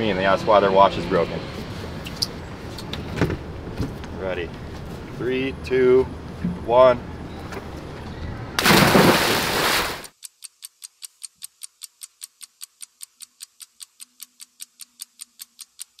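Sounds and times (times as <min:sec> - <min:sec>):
crisp ticking: 0:10.0 - 0:16.0.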